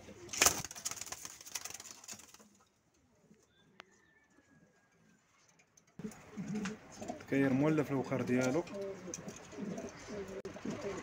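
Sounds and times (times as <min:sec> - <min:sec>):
pigeons cooing: 0:06.0 - 0:11.0.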